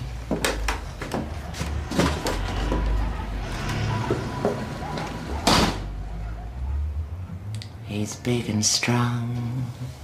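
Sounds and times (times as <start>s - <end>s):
footsteps: 0.2s - 5.2s
front door shutting: 0.5s - 6.0s.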